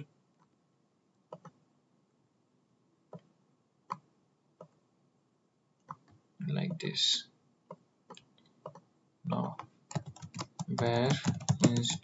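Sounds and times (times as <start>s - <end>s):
computer mouse clicking: 1.3s - 1.6s, 7.7s - 8.9s, 9.5s - 12.0s.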